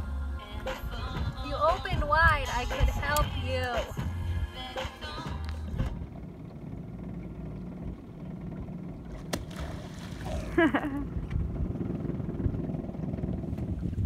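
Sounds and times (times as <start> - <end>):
low steady rumble: 0.0 - 14.0
animal splashing into water: 9.2 - 10.6.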